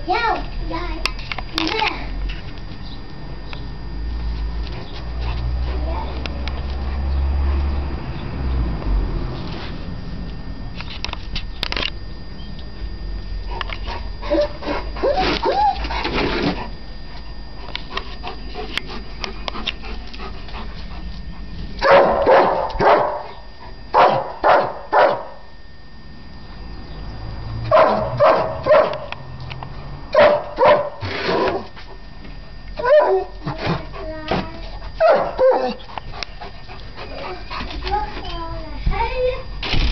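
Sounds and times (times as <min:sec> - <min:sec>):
dog whining yelps: 0:14.3 - 0:15.9, 0:32.8 - 0:33.3, 0:35.0 - 0:35.9
dog barking: 0:21.8 - 0:23.3, 0:23.9 - 0:25.4, 0:27.7 - 0:29.1, 0:30.1 - 0:31.0, 0:32.8 - 0:33.3, 0:35.0 - 0:35.8.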